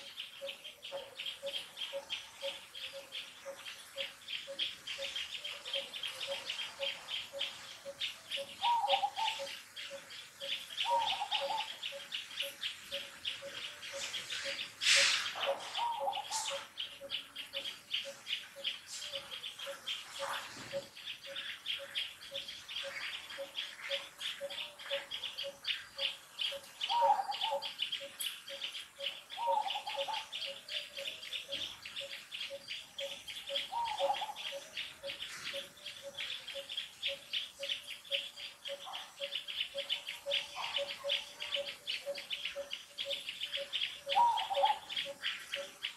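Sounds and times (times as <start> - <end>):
birds calling: 0.0 - 45.9.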